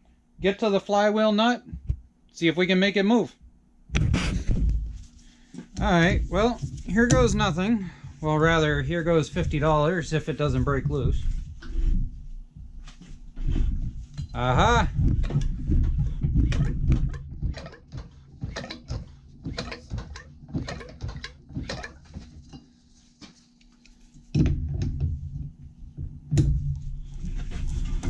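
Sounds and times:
heavy handling knocks: 5.6s - 9.9s, 14.2s - 22.5s.

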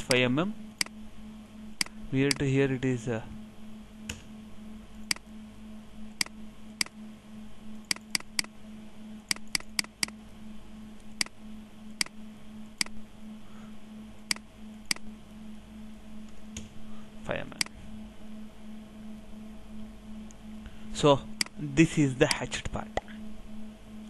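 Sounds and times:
steady low hum: 0.0s - 24.0s
computer mouse button clicking: 9.3s - 10.2s.

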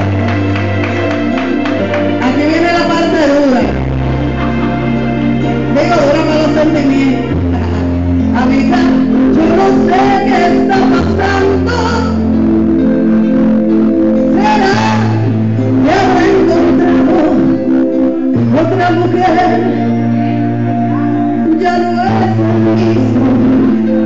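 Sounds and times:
amplified instrumental accompaniment: 0.0s - 24.0s
woman singing into microphone: 8.4s - 12.3s, 14.3s - 17.6s, 21.3s - 23.9s.

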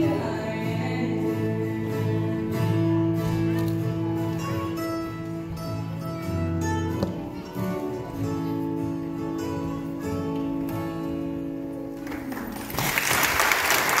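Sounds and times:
string band playing: 0.0s - 11.8s
audience applause: 12.0s - 14.0s.

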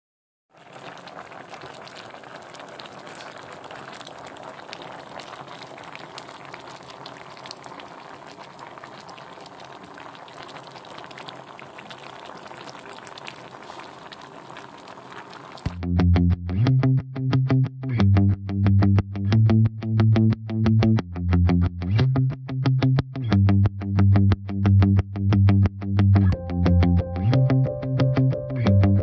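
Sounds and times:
broth bubbling in a pot: 0.5s - 15.8s.

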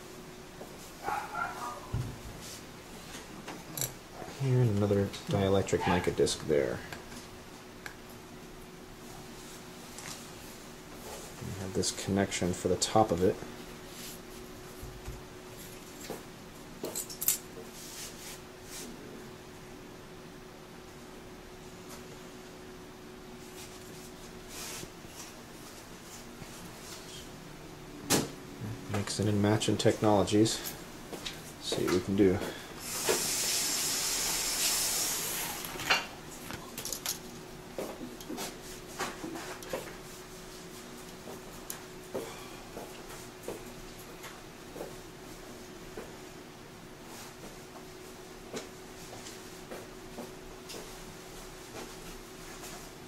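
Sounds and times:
faint steady hum: 0.0s - 53.0s
hiss: 32.8s - 35.8s.

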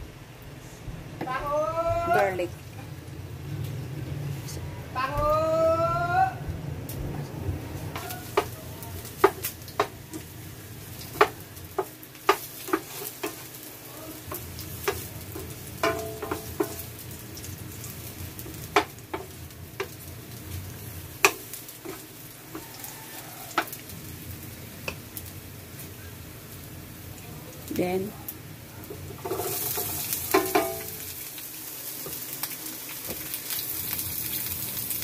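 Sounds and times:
garlic sizzling in oil: 7.8s - 35.0s
wooden spatula knocking pan: 8.0s - 10.0s, 11.1s - 13.4s, 14.3s - 16.8s, 18.7s - 20.0s, 29.2s - 30.9s.

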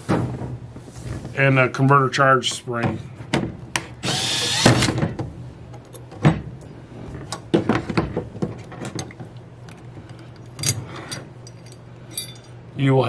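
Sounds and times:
metal parts clinking on bench: 10.4s - 12.6s.

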